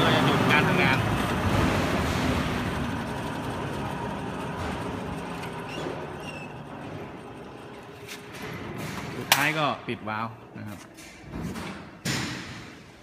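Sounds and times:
drying oven machine rushing: 0.0 - 9.8.

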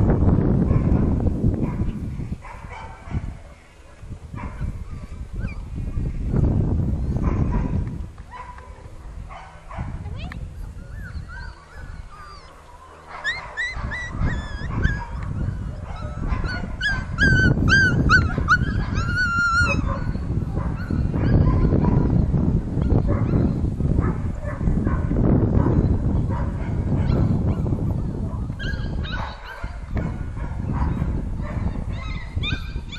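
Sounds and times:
low rumbling noise: 0.0 - 29.1
puppies yipping and whining: 4.5 - 5.7, 10.6 - 22.3, 28.6 - 29.8, 31.6 - 32.9.

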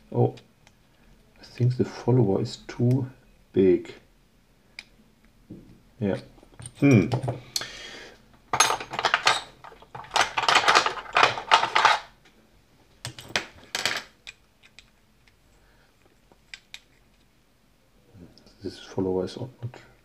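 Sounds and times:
metal scraping and clinking in lock: 8.6 - 12.1.

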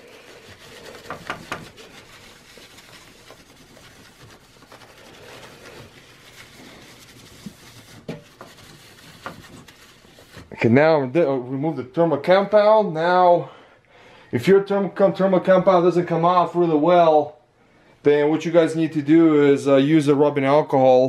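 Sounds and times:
paper towel rubbing on metal: 0.0 - 10.8.

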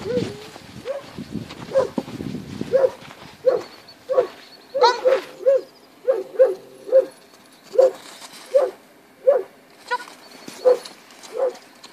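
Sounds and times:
dog barking: 0.8 - 1.1, 1.7 - 2.0, 2.7 - 9.5, 10.6 - 11.6.

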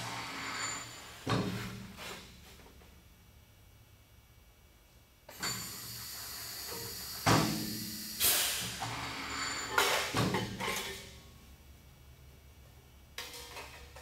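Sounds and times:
compressed air hissing: 5.7 - 9.5.

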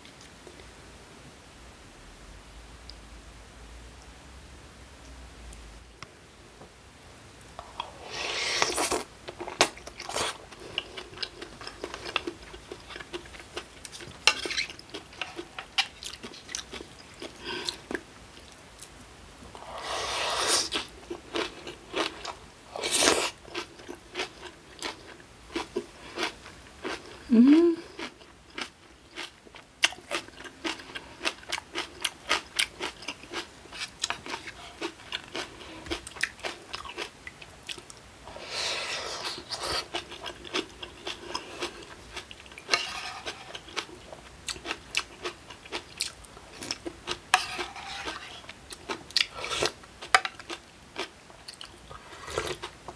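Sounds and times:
slurping broth: 7.6 - 9.1, 19.6 - 20.9, 38.3 - 40.2, 42.7 - 43.8, 47.4 - 48.5, 51.9 - 52.7
person humming: 27.3 - 28.0
crunchy chewing: 28.0 - 52.8.

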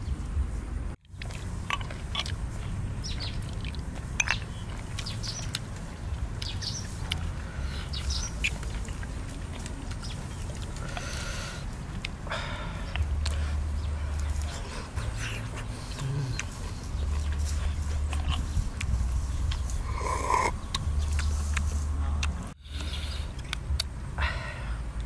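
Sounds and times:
low outdoor rumble: 0.0 - 25.0
bird chirps: 2.6 - 5.6, 6.4 - 9.3.

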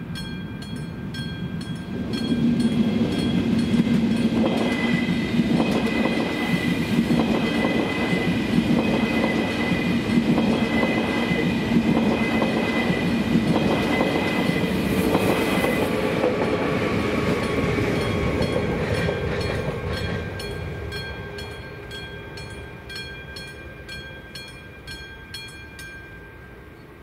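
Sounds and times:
level crossing warning bell: 0.0 - 6.2, 17.3 - 26.8
train wheels clattering on rails: 0.2 - 26.0.

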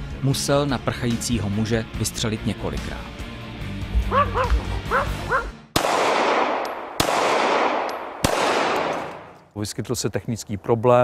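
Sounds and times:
dog barking: 4.1 - 5.5
echoing gunshots: 5.7 - 9.4.

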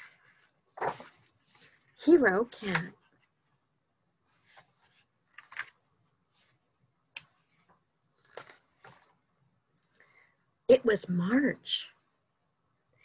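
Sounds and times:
book pages turning: 0.0 - 1.9, 4.3 - 6.6, 7.2 - 9.2.

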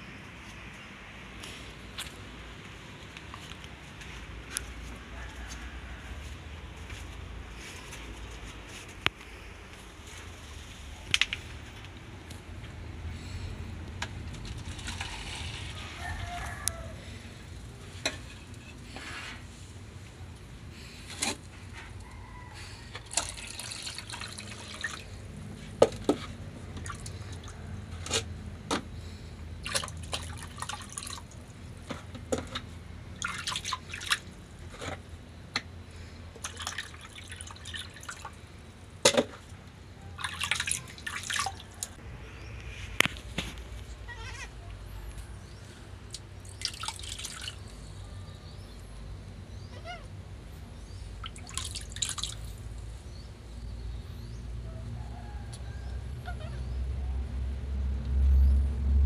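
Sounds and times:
water splashing and dripping: 23.0 - 25.3, 26.7 - 27.6, 29.6 - 31.5, 32.4 - 34.4, 36.4 - 38.4, 40.2 - 42.0, 46.1 - 47.8, 51.2 - 52.7.

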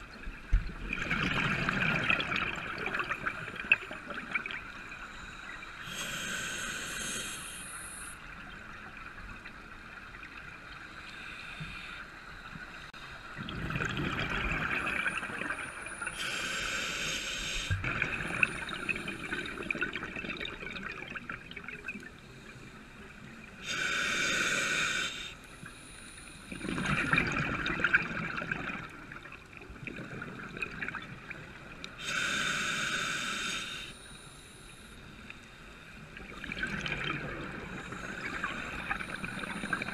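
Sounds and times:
regulator hissing inhales: 5.1 - 8.2, 16.1 - 17.8, 23.6 - 26.5, 32.0 - 35.4.

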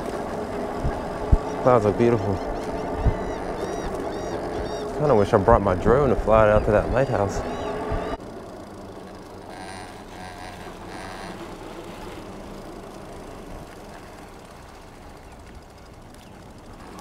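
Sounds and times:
electric bike motor hum: 0.0 - 17.0
wind noise on microphone: 0.8 - 8.2.

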